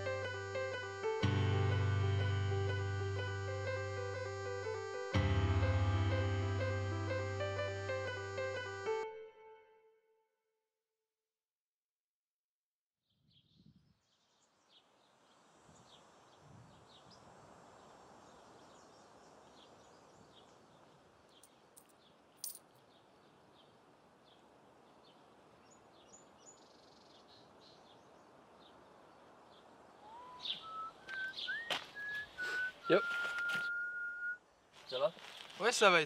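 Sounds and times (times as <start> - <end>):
small birds chirping: 13.1 - 33.7, 34.8 - 35.8
person whistling: 30.1 - 34.4.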